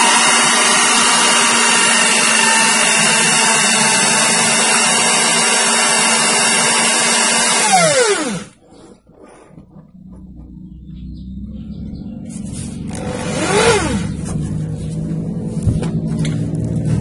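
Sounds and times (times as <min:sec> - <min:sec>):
electric drill running: 0:00.0 - 0:08.6, 0:12.9 - 0:14.2.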